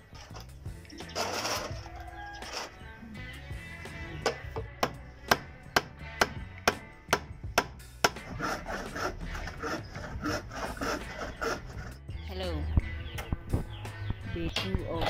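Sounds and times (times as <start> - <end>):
hand saw cutting wood: 0.1 - 2.8, 5.3 - 12.0.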